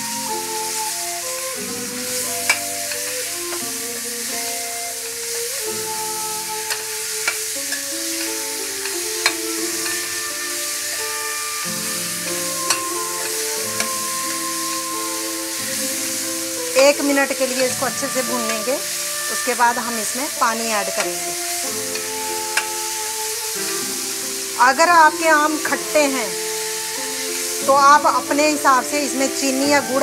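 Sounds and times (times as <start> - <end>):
fruit sizzling in hot oil: 0.0 - 30.0
slow melodic background music: 0.0 - 30.0
spoon clinking against pan: 6.7 - 15.6.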